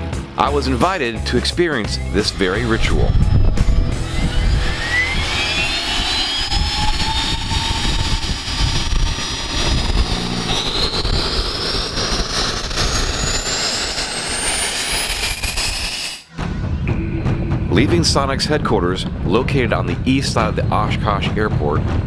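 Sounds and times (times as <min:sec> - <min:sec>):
rising turbine whine: 0:00.0 - 0:22.0
jet noise rush: 0:02.0 - 0:22.0.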